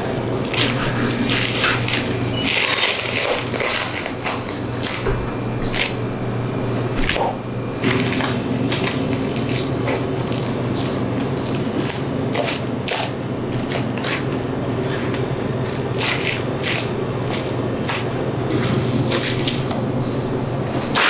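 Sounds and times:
steady low hum: 0.0s - 21.0s
knife cutting and tearing meat: 0.4s - 5.0s, 7.8s - 19.7s.

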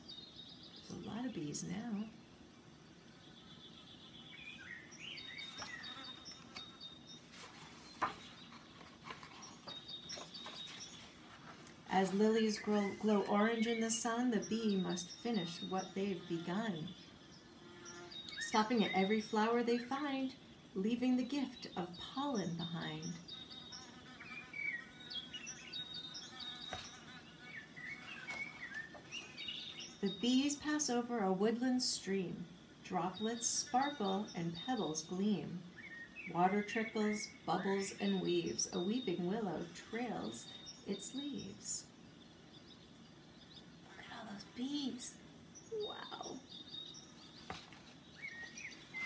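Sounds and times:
small birds chirping: 0.0s - 49.0s
book page turning: 5.4s - 6.7s, 7.3s - 13.2s, 26.6s - 27.0s, 28.1s - 29.4s, 47.4s - 49.0s
faint high chirping: 33.9s - 49.0s.

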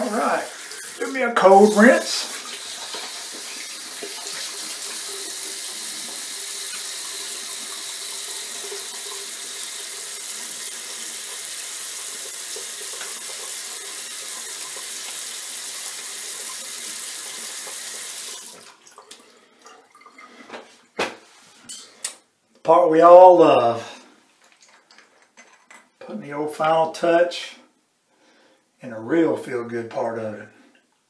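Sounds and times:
sink tap running: 0.0s - 19.2s.

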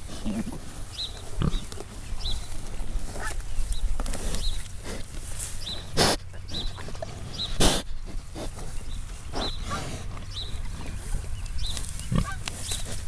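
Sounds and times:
pig snorts: 0.0s - 1.8s, 4.0s - 5.2s, 5.8s - 11.0s, 12.0s - 13.0s
pigs tearing and chewing grass: 0.0s - 13.0s.

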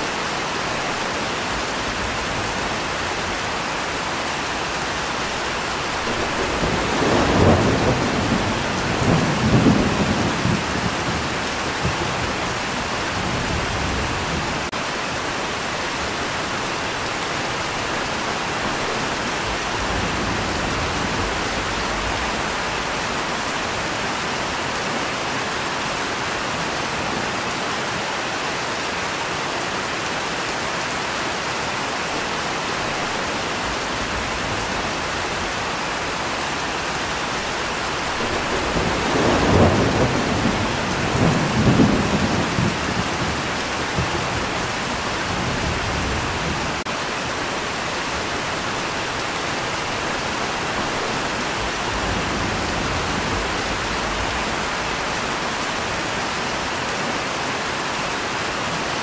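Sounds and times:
steady rain: 0.0s - 59.0s
low thunder roll: 5.9s - 12.5s, 37.4s - 46.8s.

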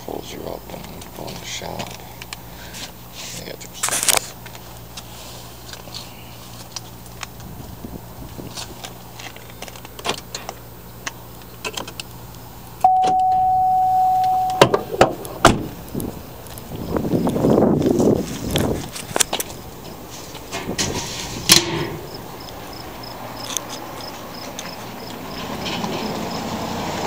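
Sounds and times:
steady electronic beep: 12.8s - 15.0s.

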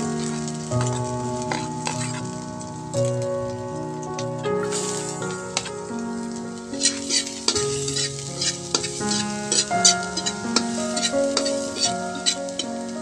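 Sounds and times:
background music: 0.0s - 13.0s
garlic sizzling in a wok: 0.0s - 13.0s
ladle scraping metal wok: 6.8s - 12.4s.

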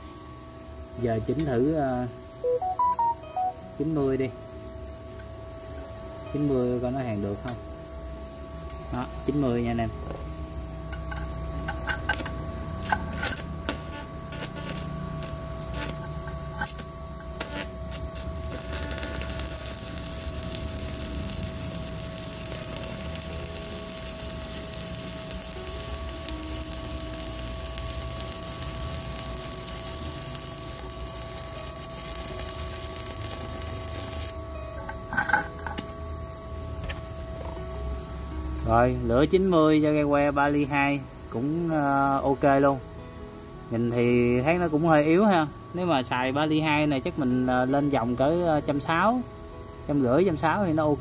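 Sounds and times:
welder whine: 5.0s - 51.0s
welding arc crackling: 11.6s - 34.4s.

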